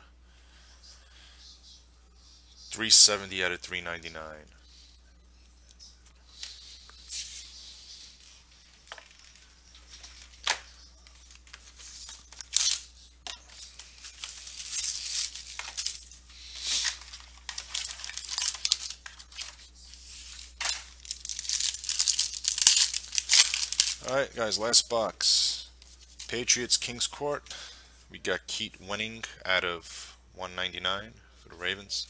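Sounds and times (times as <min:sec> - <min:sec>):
plastic wrapper crinkling and tearing: 0:11.3 - 0:12.9, 0:13.6 - 0:19.7, 0:20.4 - 0:24.2.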